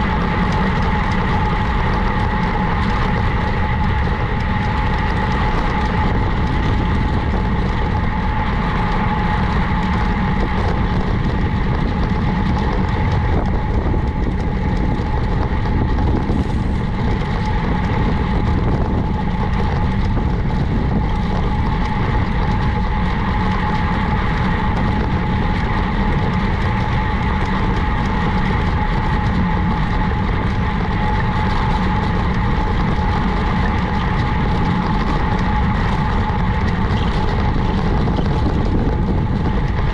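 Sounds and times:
bicycle riding rumble: 0.0s - 39.9s
thin whine: 0.0s - 39.9s.

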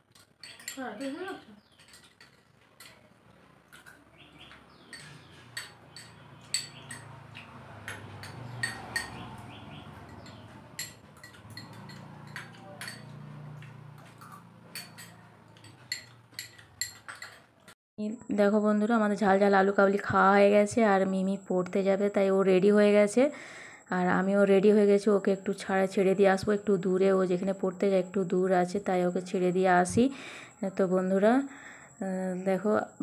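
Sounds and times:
spoons clinking against bowls: 0.0s - 17.7s.

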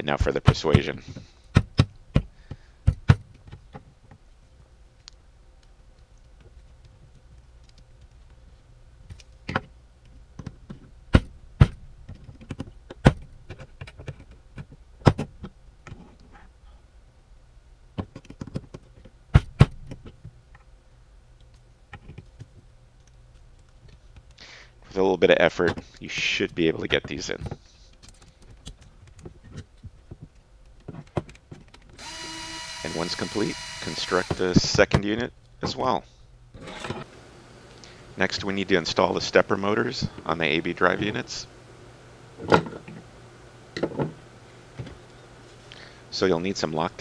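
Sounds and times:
screws forced into plastic: 31.8s - 34.6s.

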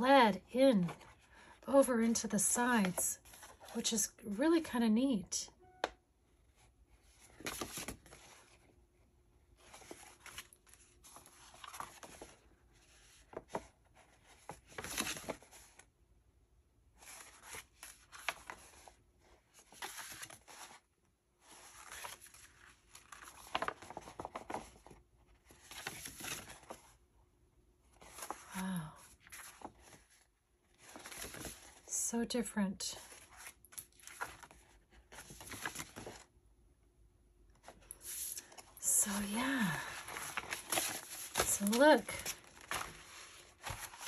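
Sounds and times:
paper sheets rustling: 21.4s - 26.9s, 30.8s - 31.9s, 33.0s - 36.3s, 37.6s - 44.0s.

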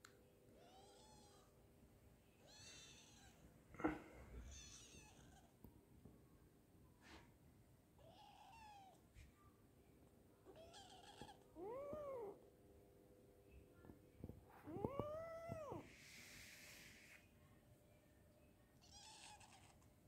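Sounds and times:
kitten meowing: 8.0s - 9.0s, 10.5s - 12.4s, 18.8s - 19.8s.

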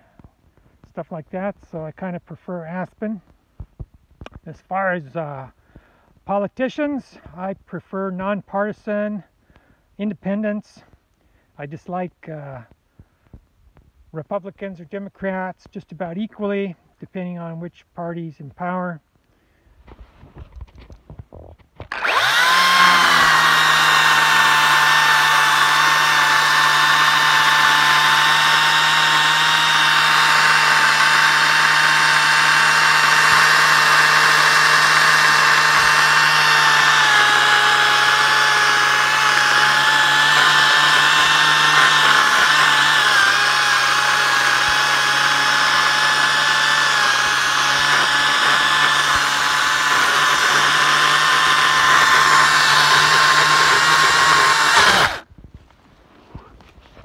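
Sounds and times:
electric chainsaw cutting log: 21.8s - 55.3s.

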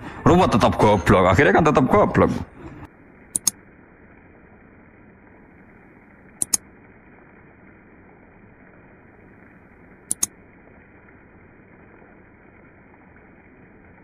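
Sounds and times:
sharp double click: 3.4s - 3.6s, 6.4s - 6.6s, 10.1s - 10.3s.

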